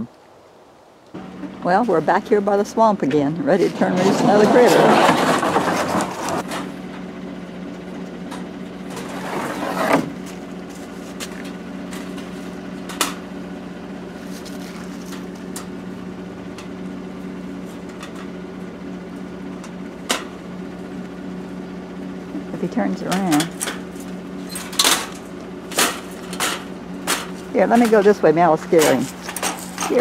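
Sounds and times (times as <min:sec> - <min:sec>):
truck engine idling: 0:01.2 - 0:30.0
rustling: 0:14.1 - 0:15.6.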